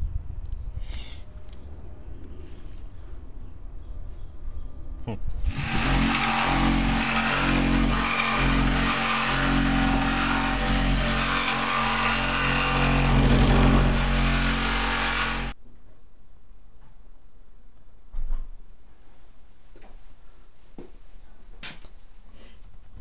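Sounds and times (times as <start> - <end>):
power tool motor running: 5.5 - 15.6.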